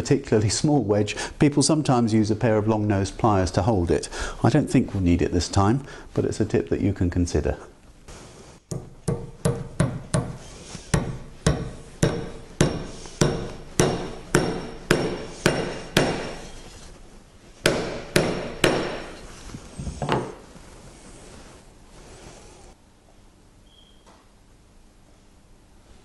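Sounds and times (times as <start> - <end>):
dull hammer knock: 8.7 - 16.4, 17.6 - 19.1
hammer tapping metal wedges: 8.7 - 16.8, 17.6 - 19.3.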